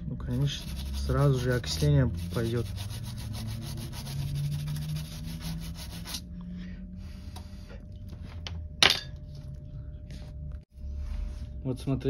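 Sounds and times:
toothbrush scrubbing circuit board: 0.3s - 6.2s.

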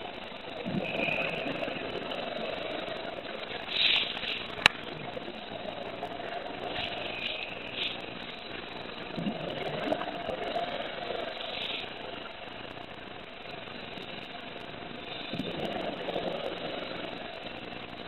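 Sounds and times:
steady hum: 0.0s - 18.0s
bubbling exhale: 0.6s - 2.6s.

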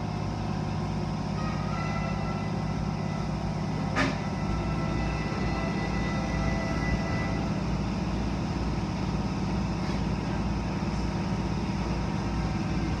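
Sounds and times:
low drone of machinery: 0.0s - 13.0s.

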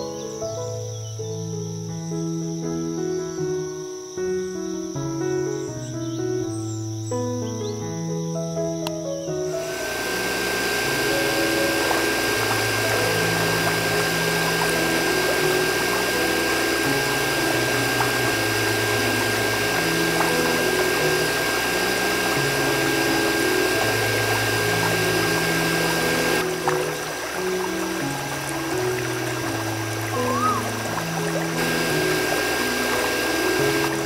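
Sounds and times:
slow background music: 0.0s - 34.0s
electric water pump whine: 9.5s - 34.0s
water spraying from hose: 9.5s - 34.0s.

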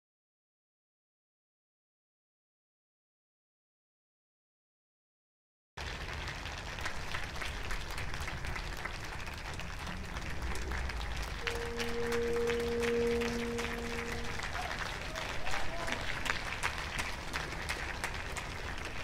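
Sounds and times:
applause: 5.8s - 19.0s
steady held tone: 10.9s - 15.3s.

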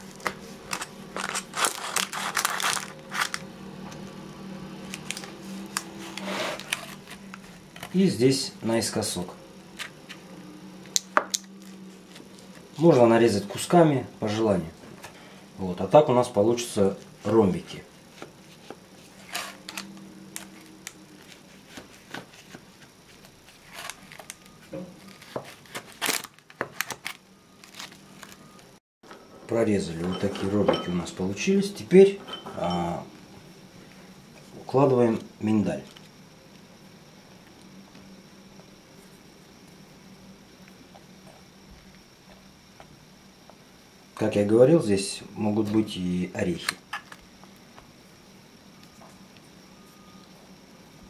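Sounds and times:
knife crunching through pastry: 0.7s - 3.4s.

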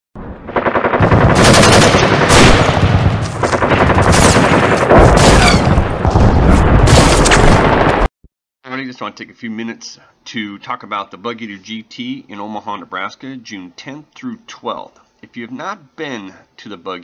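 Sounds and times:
machine-gun fire: 0.5s - 8.1s.

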